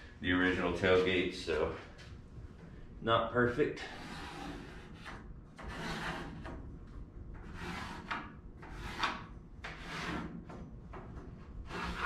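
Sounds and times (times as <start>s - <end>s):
pencil scraping on wooden boards: 3.9s - 6.6s, 7.4s - 10.6s, 11.6s - 12.0s.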